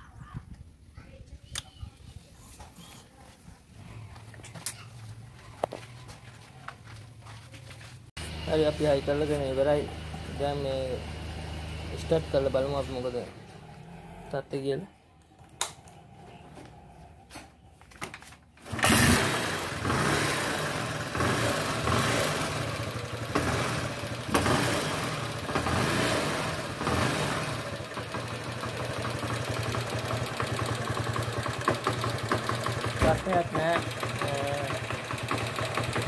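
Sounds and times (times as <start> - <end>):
motorcycle engine revving and idling: 8.2 - 17.8, 18.6 - 36.0.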